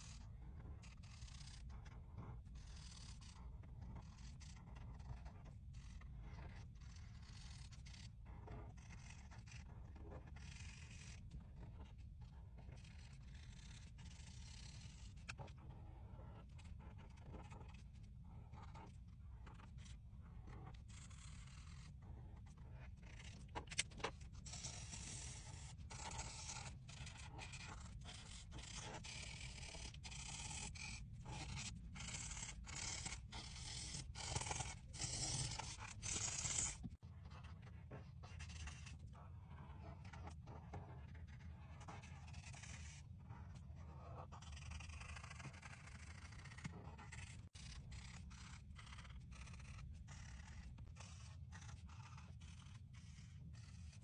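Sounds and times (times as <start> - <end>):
marker rubbing on paper: 10.3 - 37.5, 38.2 - 54.0.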